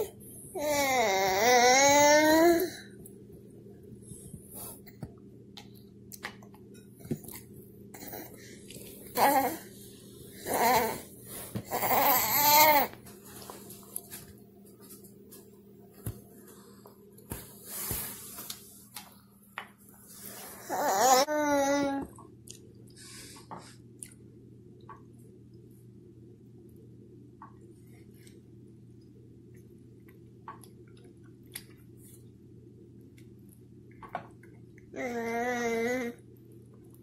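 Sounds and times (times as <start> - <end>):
toddler babbling: 0.0 - 2.8, 10.4 - 11.0, 20.6 - 22.1, 35.0 - 36.2.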